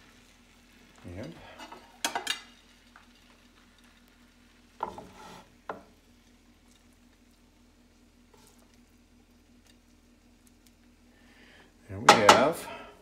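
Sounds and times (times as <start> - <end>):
faint room hum: 0.0 - 13.0
spatula scraping skillet: 1.2 - 3.9, 4.8 - 5.8, 8.3 - 8.8.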